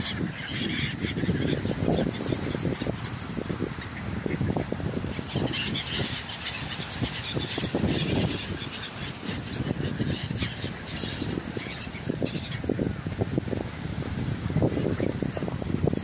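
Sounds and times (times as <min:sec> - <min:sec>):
ducks quacking: 0:00.0 - 0:12.7
gulls calling: 0:00.0 - 0:13.2.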